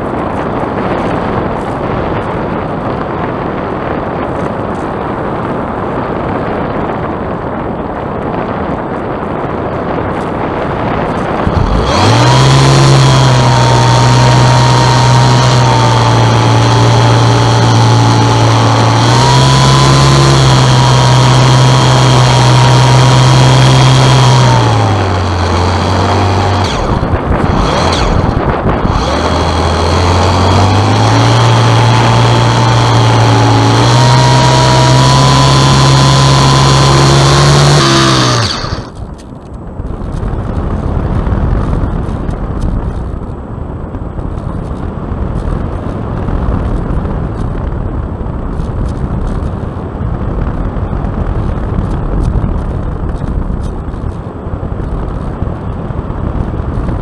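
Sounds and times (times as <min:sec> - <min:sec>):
model plane motor whining: 0:11.0 - 0:39.5.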